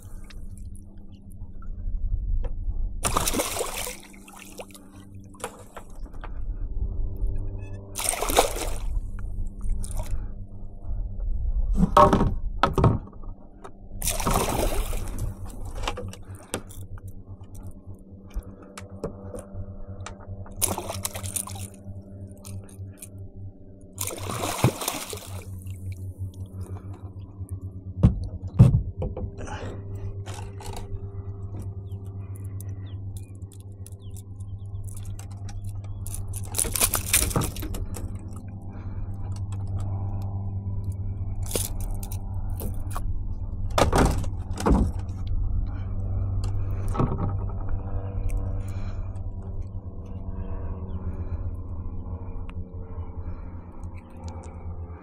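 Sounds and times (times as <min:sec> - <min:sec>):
water splashing: 0:03.0 - 0:04.8, 0:08.0 - 0:08.9, 0:14.0 - 0:15.4, 0:20.6 - 0:21.8, 0:24.0 - 0:25.8.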